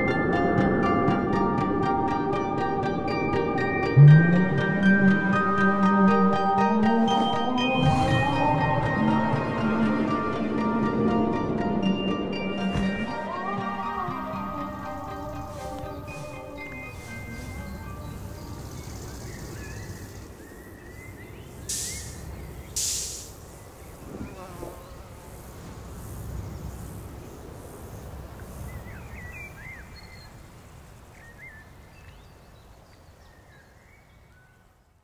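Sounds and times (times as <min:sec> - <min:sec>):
insects buzzing: 0:07.4 - 0:33.1
hissing swells: 0:07.7 - 0:30.0.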